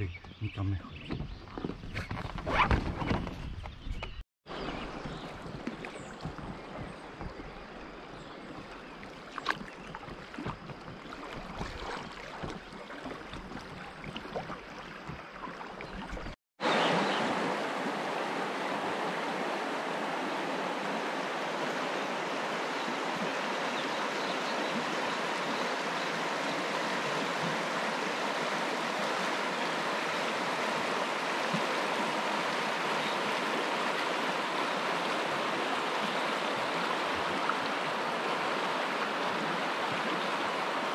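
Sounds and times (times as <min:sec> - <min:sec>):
water lapping around canoe: 0:04.5 - 0:16.4, 0:18.6 - 0:40.9
shallow river rushing over stones: 0:16.6 - 0:40.9.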